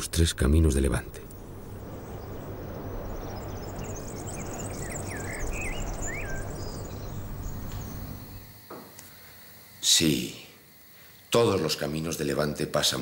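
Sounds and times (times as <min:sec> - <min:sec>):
bird chirping: 0:00.0 - 0:08.5
low background rumble: 0:00.0 - 0:08.5
insects shimmering: 0:00.0 - 0:13.0.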